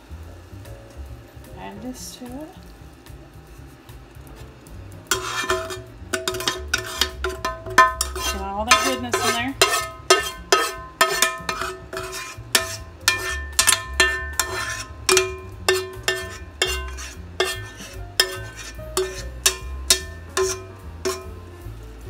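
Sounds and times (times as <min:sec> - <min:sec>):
metal spoon scraping metal pan: 0:05.1 - 0:21.5.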